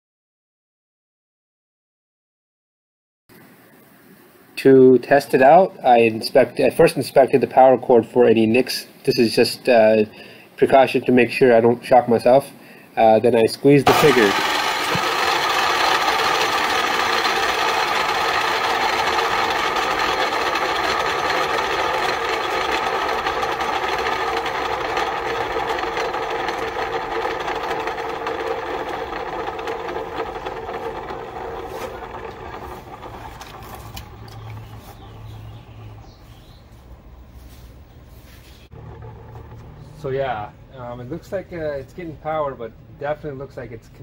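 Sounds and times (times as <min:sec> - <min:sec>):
saw motor and blade whine: 0:13.9 - 0:35.4.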